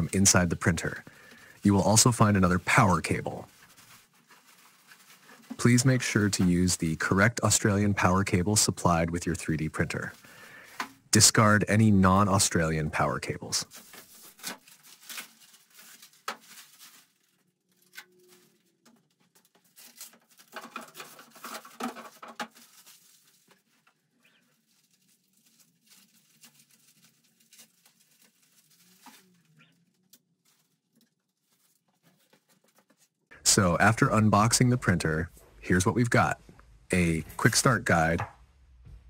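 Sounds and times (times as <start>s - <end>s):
plastic packaging crinkling: 0.0s - 9.0s, 13.6s - 33.1s.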